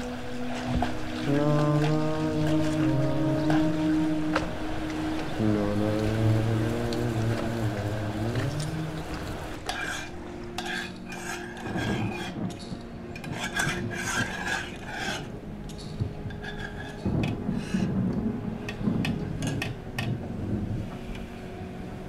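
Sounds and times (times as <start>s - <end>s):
sustained music tones: 0.0s - 22.0s
cutlery scraping metal bowls: 9.6s - 12.6s, 13.2s - 17.0s.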